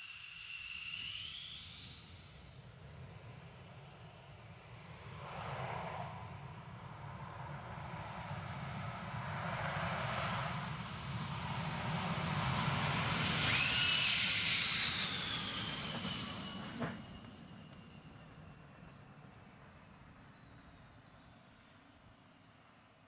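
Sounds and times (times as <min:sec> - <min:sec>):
fighter jet passing by: 0:04.9 - 0:20.5.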